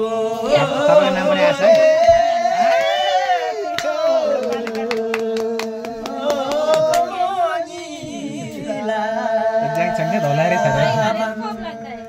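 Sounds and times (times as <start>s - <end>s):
man singing unaccompanied: 0.0s - 12.0s
hand clapping steady beat: 1.6s - 2.9s, 3.7s - 7.2s.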